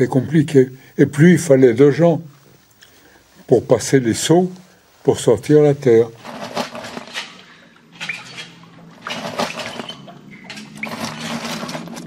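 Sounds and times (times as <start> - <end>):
soil scraping and pouring: 6.2 - 12.0.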